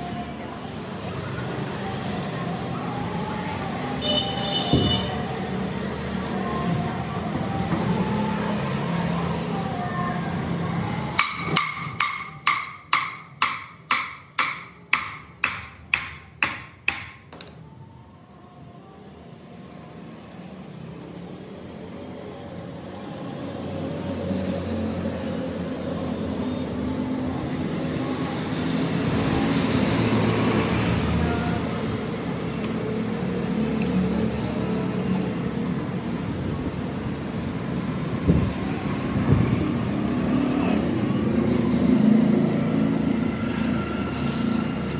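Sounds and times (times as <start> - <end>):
hammer blows on metal: 11.1 - 17.4.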